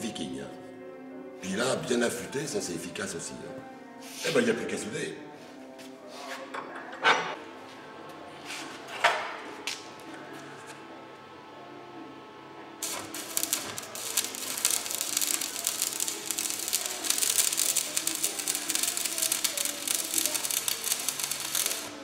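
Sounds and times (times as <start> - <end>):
welding arc crackling and sizzling: 12.8 - 22.0.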